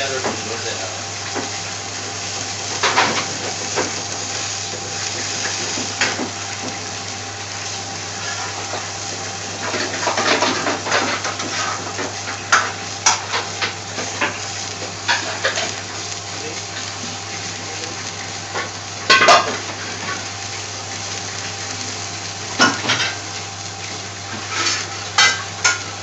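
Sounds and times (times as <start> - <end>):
vegetables boiling in a pan: 0.0 - 26.0.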